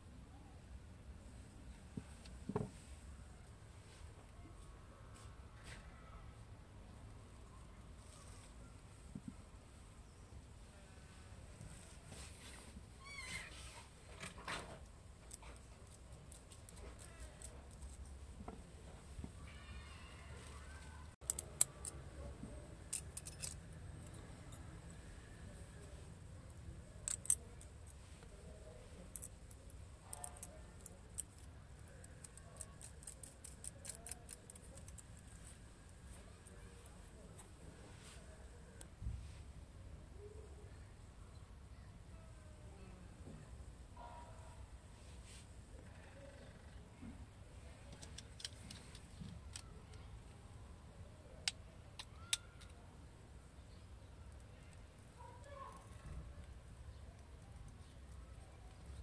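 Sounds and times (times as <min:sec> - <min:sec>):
metal parts clinking: 0:21.2 - 0:22.0, 0:22.8 - 0:24.7, 0:27.0 - 0:28.0, 0:29.0 - 0:35.6.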